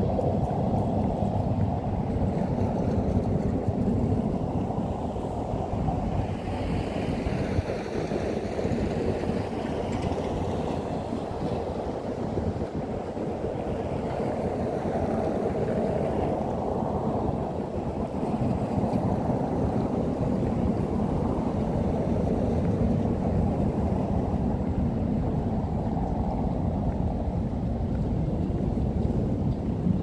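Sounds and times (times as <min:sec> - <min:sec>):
road traffic rumble: 0:00.0 - 0:16.4.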